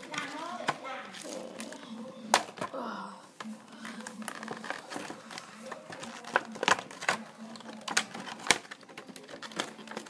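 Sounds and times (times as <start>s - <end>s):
objects clicking and tapping: 3.4s - 10.0s.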